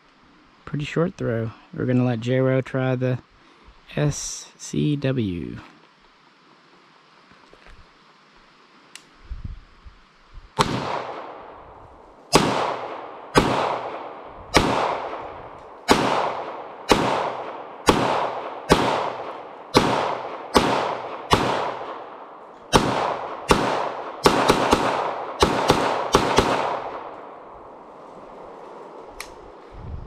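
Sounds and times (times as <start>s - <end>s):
pistol shots with echo: 10.6s - 11.6s, 12.3s - 27.4s.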